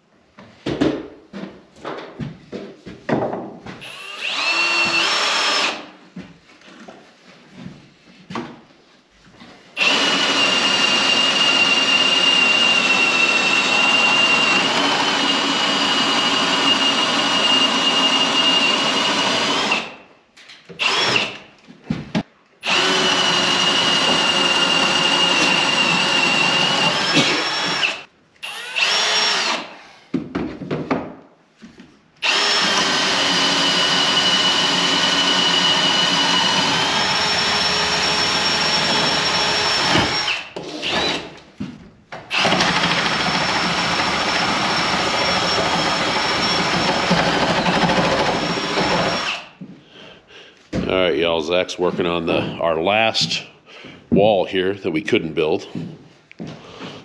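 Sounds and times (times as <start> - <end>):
power drill whining: 3.8 - 5.9, 9.8 - 20.0, 20.8 - 21.5, 22.6 - 30.0, 32.2 - 41.4, 42.3 - 49.7.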